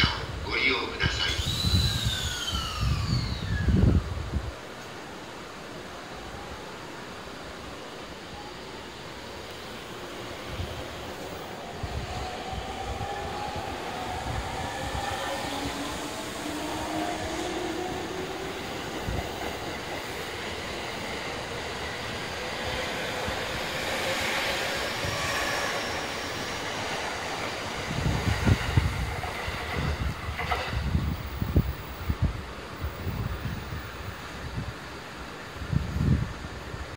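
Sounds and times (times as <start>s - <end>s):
wind buffeting microphone: 1.0s - 4.7s, 10.2s - 34.9s, 35.5s - 36.9s
train wheels on rails: 1.0s - 5.7s, 6.9s - 36.9s
electric train motor whine: 1.2s - 4.2s.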